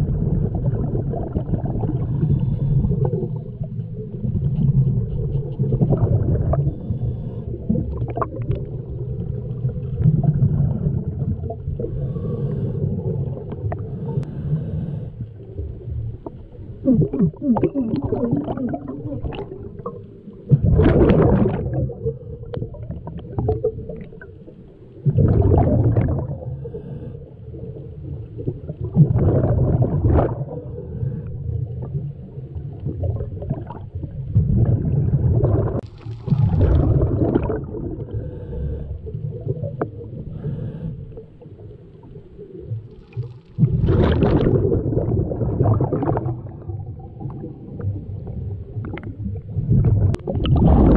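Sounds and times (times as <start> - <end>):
exhaled bubbles rushing: 0.0 - 14.3, 15.4 - 50.9
diver inhaling through regulator: 2.0 - 3.8, 6.4 - 8.0, 11.8 - 15.5, 26.2 - 27.8, 37.9 - 41.8.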